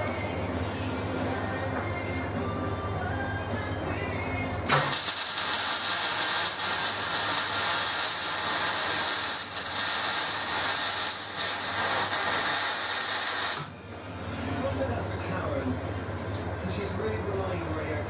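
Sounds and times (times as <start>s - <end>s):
arc welding hiss: 4.7s - 13.7s.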